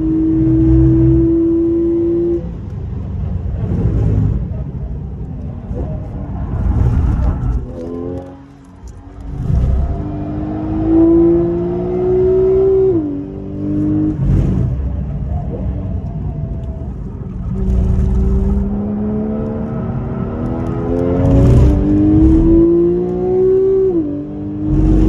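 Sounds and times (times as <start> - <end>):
car engine revving from inside: 9.2 - 14.9, 17.3 - 25.0.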